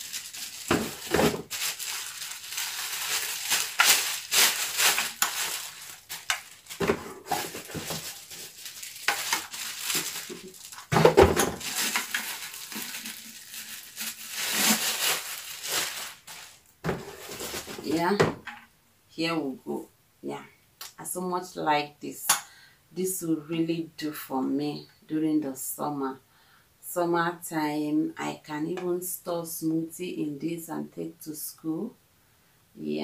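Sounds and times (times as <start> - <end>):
plastic wrapping crinkling: 0.0 - 18.0.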